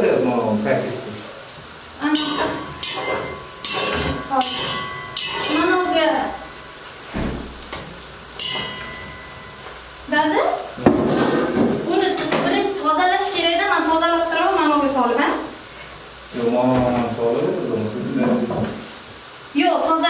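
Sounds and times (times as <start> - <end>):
pots and pans clattering: 2.0 - 9.9, 10.8 - 12.8.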